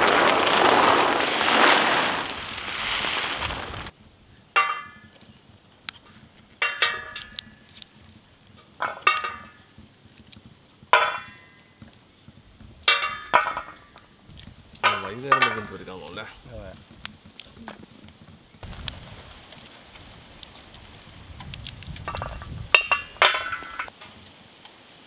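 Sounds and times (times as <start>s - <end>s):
peanuts pouring rattling hiss: 0.0s - 3.9s.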